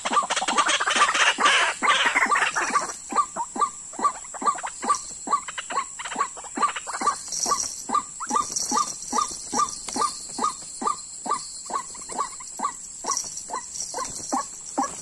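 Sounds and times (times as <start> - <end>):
bird calls: 0.0 - 15.0.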